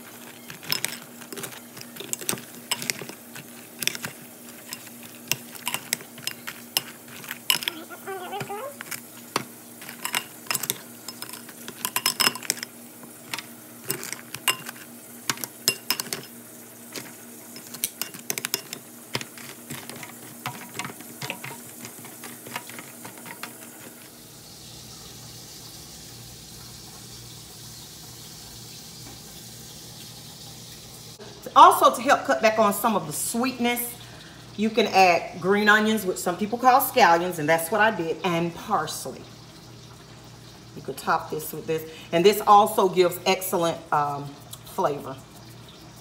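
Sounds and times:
metal utensil scraping foil pan: 0.0s - 16.3s, 16.9s - 24.1s
low hum with faint hiss: 0.0s - 46.0s.

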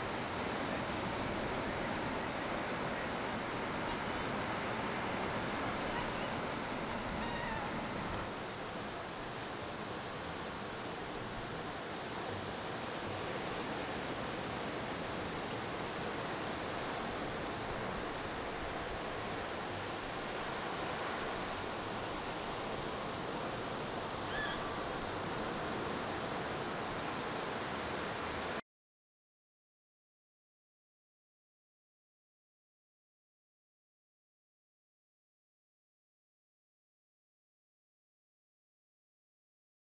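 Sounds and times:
ocean surf breaking: 0.0s - 28.6s
faint high chirp: 24.2s - 24.8s.

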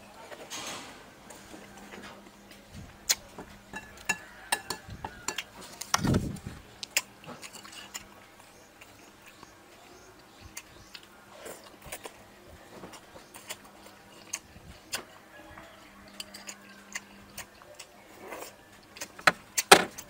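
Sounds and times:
chewing and lip smacks: 2.5s - 4.1s, 6.8s - 20.0s.

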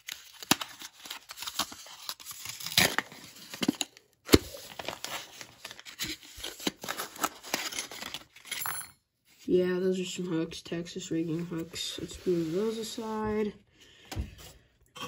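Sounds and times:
paper crinkling and tearing: 0.0s - 8.5s.

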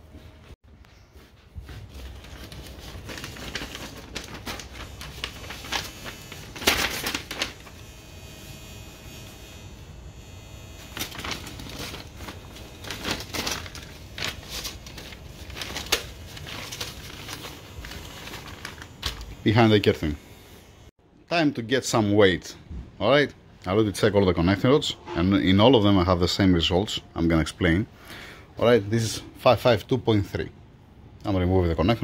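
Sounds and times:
paper envelopes rustling: 1.5s - 7.7s, 10.9s - 20.2s.

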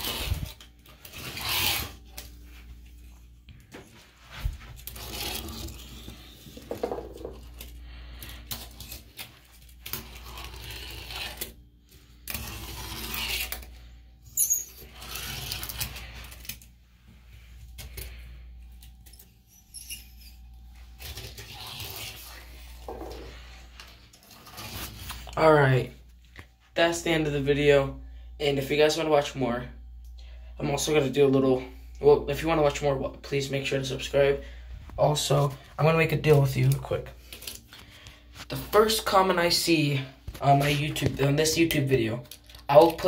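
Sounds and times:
wheels scraping over ceramic: 0.0s - 2.0s.

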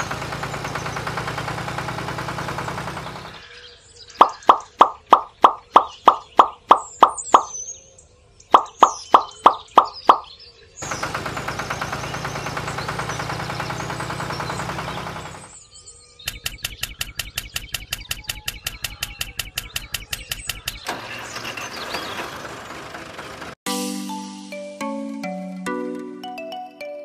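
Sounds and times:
tractor engine chugging: 0.0s - 3.4s, 8.6s - 15.6s, 16.3s - 23.6s
birds chirping: 0.0s - 23.0s.

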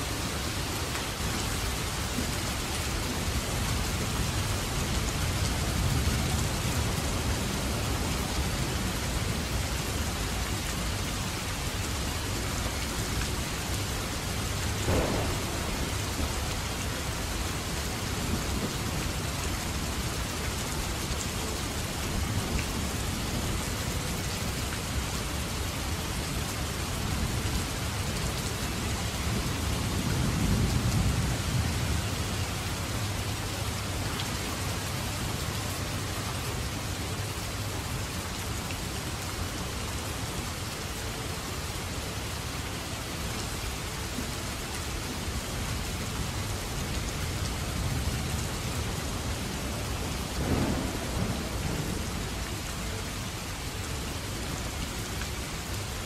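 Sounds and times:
heavy rain falling: 0.0s - 56.0s
low thunder rumble: 14.7s - 19.9s, 47.8s - 52.7s
sharp thunder crack: 14.8s - 17.4s.

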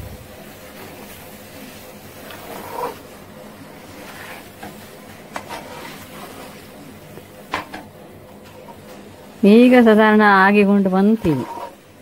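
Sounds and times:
steady low hiss: 0.0s - 11.2s
metal spatula scraping a pan: 2.1s - 6.8s, 10.9s - 12.0s.

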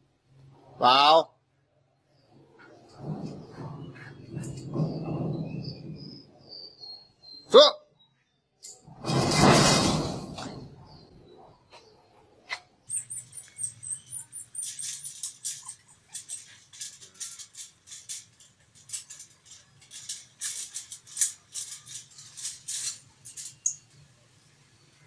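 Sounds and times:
chain-link fence rattling: 8.8s - 10.8s, 12.8s - 24.2s
high thin chirping: 12.8s - 18.3s.

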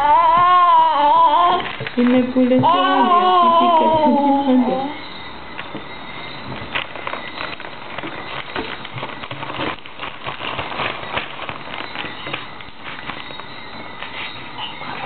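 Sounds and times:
wrapping paper crinkling: 6.4s - 15.0s.

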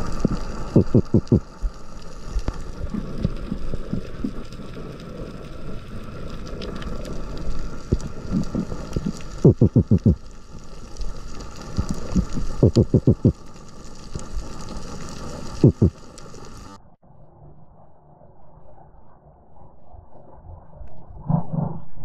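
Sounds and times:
low underwater wash: 0.0s - 22.0s
low pulses: 0.6s - 1.8s, 7.8s - 10.3s, 15.6s - 16.0s, 16.8s - 22.0s.

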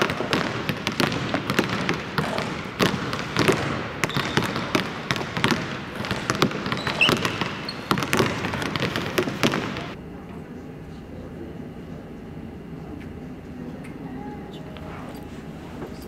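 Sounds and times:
basketballs bouncing on hardwood: 0.0s - 10.0s.

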